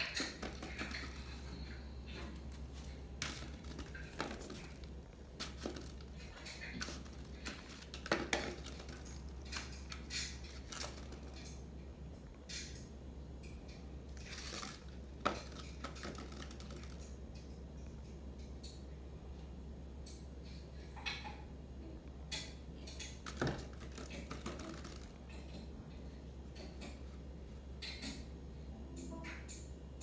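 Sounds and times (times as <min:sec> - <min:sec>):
pumpkin clattering on tile floor: 0:00.0 - 0:11.7, 0:14.2 - 0:17.2, 0:23.0 - 0:25.7.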